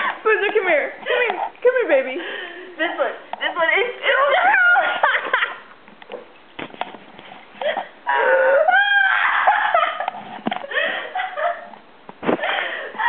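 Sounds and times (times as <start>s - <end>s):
person squealing and whining: 7.7s - 10.0s.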